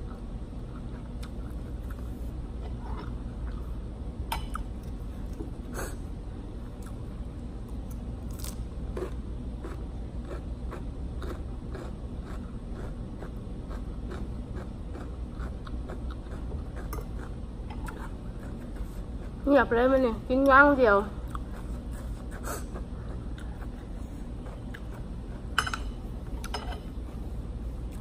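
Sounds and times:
chewing and crunching food: 0.0s - 3.7s, 6.7s - 19.5s, 21.2s - 26.5s.

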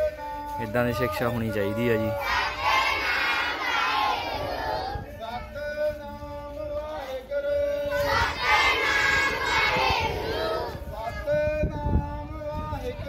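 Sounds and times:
children chanting in unison: 2.1s - 5.0s, 7.8s - 11.2s.

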